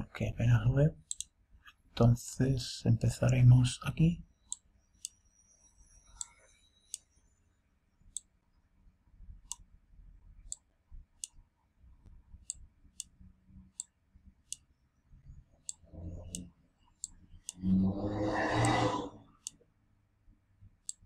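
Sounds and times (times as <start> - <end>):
computer mouse button clicking: 1.1 - 1.3, 18.5 - 19.6.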